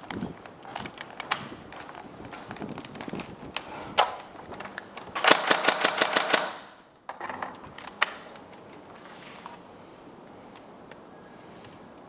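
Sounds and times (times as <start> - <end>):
airsoft rifle full-auto burst: 5.2 - 6.8.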